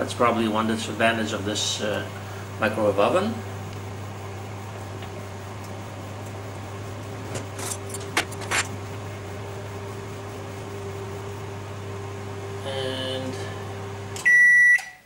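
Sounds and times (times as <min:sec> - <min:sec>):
microwave oven humming: 0:00.0 - 0:15.0.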